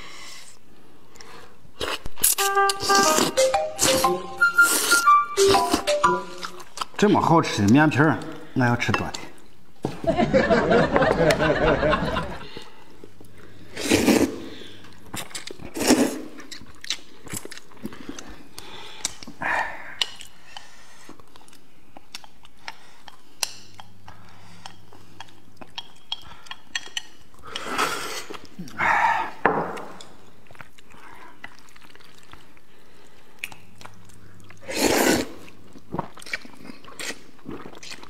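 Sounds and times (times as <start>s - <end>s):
people chewing: 0.2s - 7.0s, 10.3s - 38.0s
chopsticks clicking on plates: 24.6s - 27.7s.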